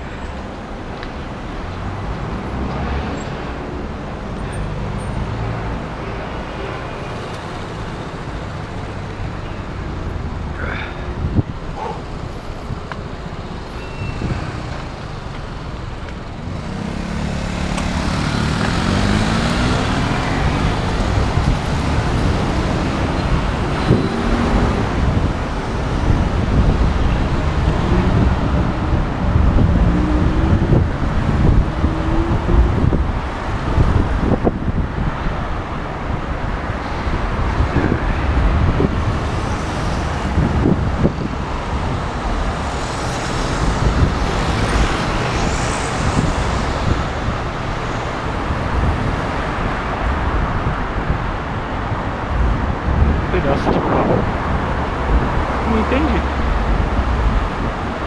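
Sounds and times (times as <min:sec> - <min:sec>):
road traffic rushing: 0:00.0 - 0:58.0
vehicle engine speeding up: 0:16.4 - 0:23.1.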